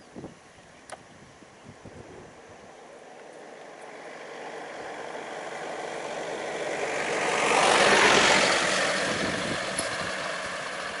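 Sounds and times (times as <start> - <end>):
vehicle passing by: 3.0 - 11.0.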